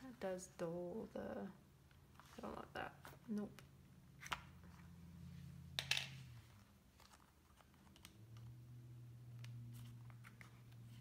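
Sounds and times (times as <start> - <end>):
faint low hum: 0.0 - 11.0
paper rustling: 6.4 - 8.5.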